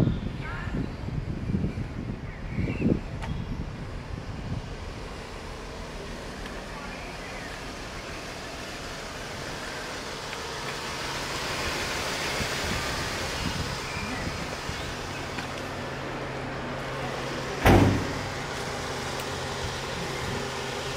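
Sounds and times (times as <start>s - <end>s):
loud thump with ring-out: 17.6s - 18.4s.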